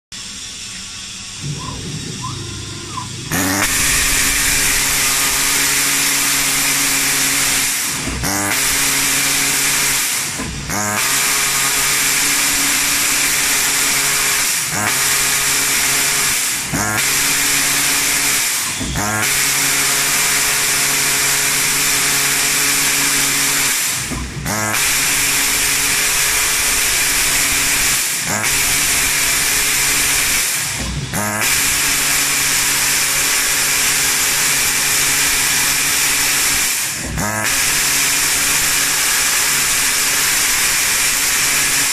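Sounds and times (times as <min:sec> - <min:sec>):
plasma cutter hissing: 0:00.1 - 0:41.9
low machine hum: 0:00.2 - 0:08.2
sliding-pitch machine whine: 0:00.2 - 0:14.2.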